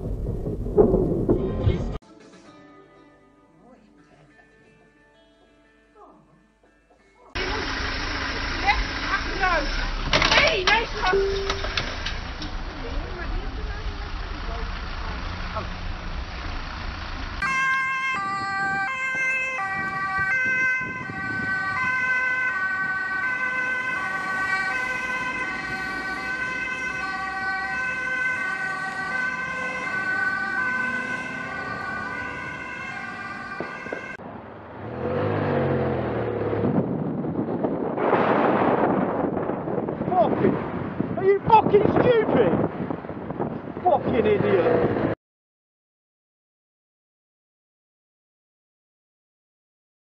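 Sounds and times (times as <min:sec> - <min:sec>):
road and wind noise: 0:00.0 - 0:02.0, 0:07.4 - 0:45.2
ambulance siren: 0:17.4 - 0:34.2.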